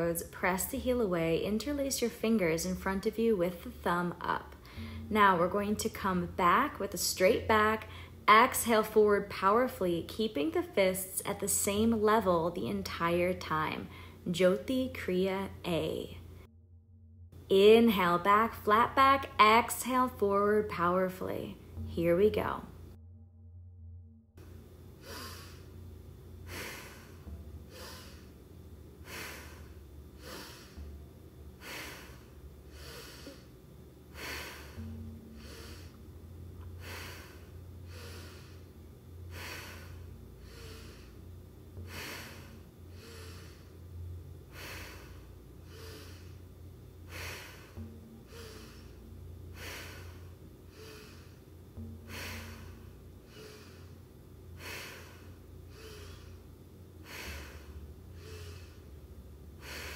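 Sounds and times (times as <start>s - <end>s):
steady low hum: 0.0s - 59.9s
person breathing forcefully: 4.6s - 5.1s, 25.0s - 25.8s, 26.4s - 28.4s, 29.0s - 30.9s, 31.5s - 33.5s, 34.1s - 36.0s, 36.6s - 59.0s, 59.6s - 59.9s.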